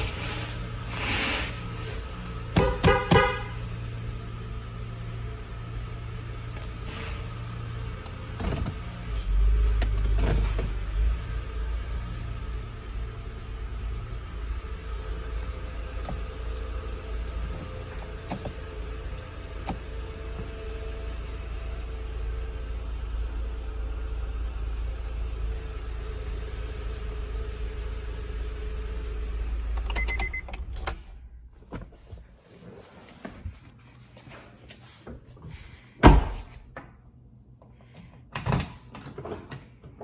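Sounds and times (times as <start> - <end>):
car engine idling: 0.0 - 34.2
short beep: 29.9 - 30.6.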